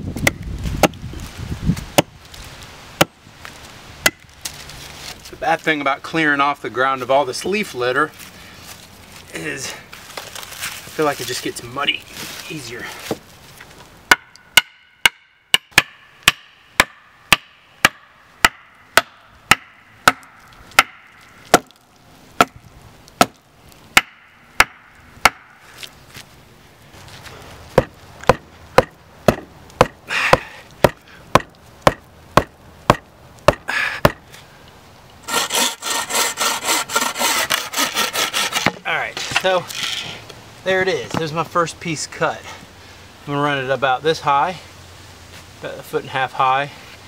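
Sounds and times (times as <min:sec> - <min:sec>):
wooden stake pounded into ground: 0:14.1 - 0:21.8, 0:27.8 - 0:34.2
hand saw cutting log: 0:35.2 - 0:40.0.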